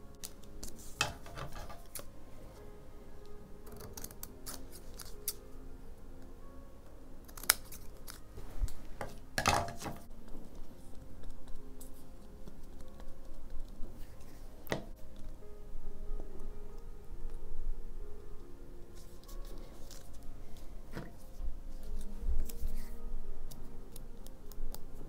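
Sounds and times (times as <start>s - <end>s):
soft background music: 0.0s - 25.0s
scissors snipping paper: 0.2s - 2.1s, 3.6s - 5.4s, 7.2s - 8.2s, 18.9s - 20.2s.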